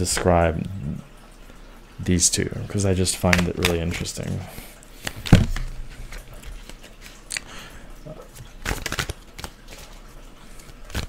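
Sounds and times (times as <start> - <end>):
cards shuffling: 3.2 - 4.4, 5.0 - 7.5, 8.3 - 11.0.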